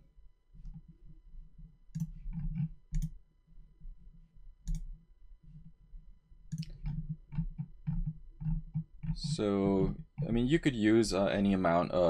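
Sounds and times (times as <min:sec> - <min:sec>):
computer mouse clicks: 0:01.9 - 0:03.2, 0:04.6 - 0:05.6, 0:06.5 - 0:10.3.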